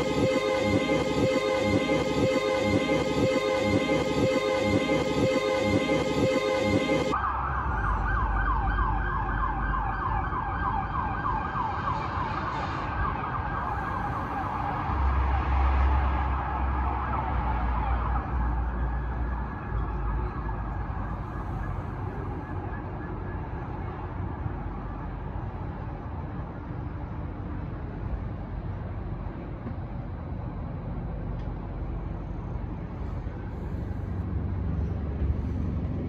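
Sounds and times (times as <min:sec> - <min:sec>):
music: 0:00.0 - 0:07.2
low steady rumble: 0:00.0 - 0:10.8, 0:23.2 - 0:36.0
emergency siren wailing: 0:00.0 - 0:27.9.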